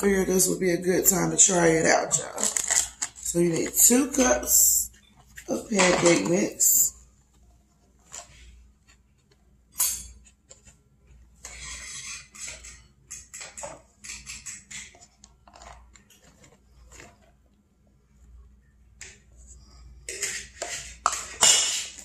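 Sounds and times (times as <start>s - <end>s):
cup scraping dry mix: 11.4s - 12.8s, 20.0s - 22.0s.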